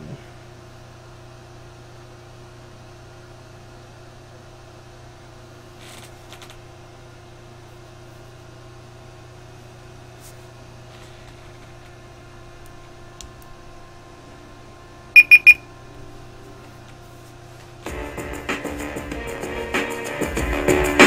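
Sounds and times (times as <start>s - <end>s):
low electrical hum: 0.0s - 18.2s.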